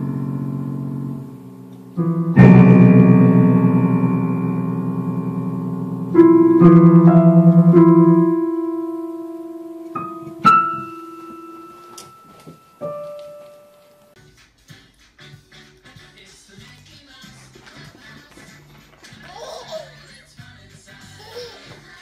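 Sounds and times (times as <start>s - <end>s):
cat walking on piano keys: 6.1s - 14.2s.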